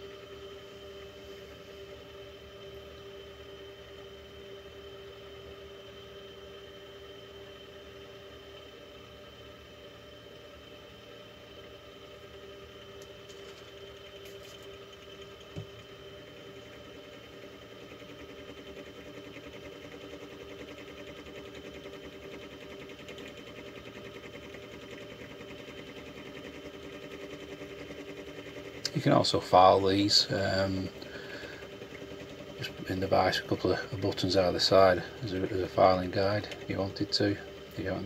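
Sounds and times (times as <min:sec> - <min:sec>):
milling machine spindle humming: 0:00.0 - 0:38.0.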